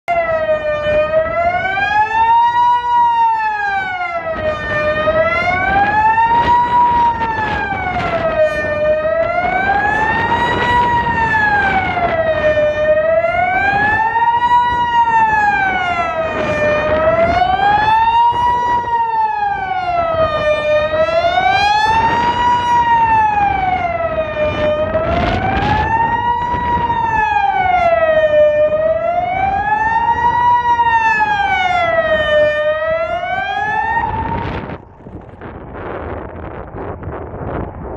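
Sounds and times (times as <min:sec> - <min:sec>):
siren wailing: 0:00.0 - 0:37.9.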